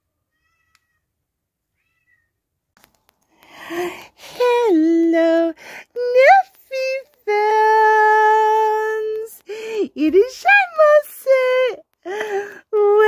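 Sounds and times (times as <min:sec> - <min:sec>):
high voice singing wordless tune: 0:03.7 - 0:13.0.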